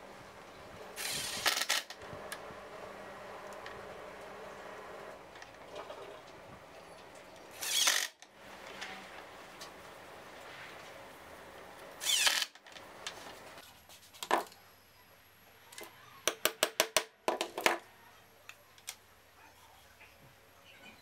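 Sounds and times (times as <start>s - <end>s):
cordless drill driving a screw: 1.0s - 2.0s, 7.5s - 8.2s, 12.0s - 12.6s.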